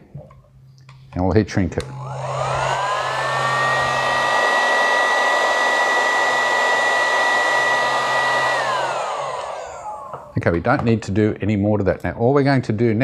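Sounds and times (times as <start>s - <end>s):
heat gun blowing: 1.8s - 10.4s.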